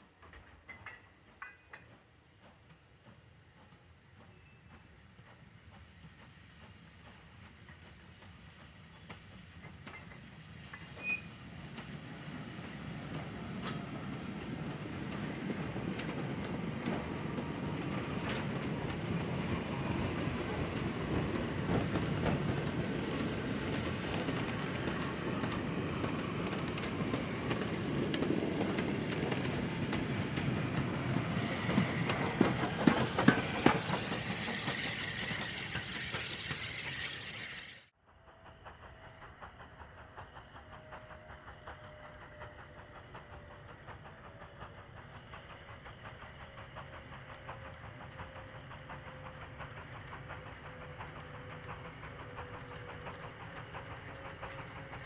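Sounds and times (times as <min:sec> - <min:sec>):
train wheels clattering over rails: 0:00.0 - 0:55.0
hiss of steam: 0:15.2 - 0:37.9, 0:38.5 - 0:55.0.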